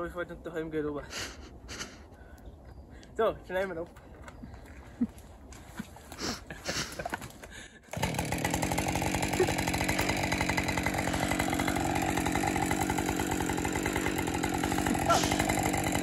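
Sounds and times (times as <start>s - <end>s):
chainsaw running: 7.9s - 16.0s.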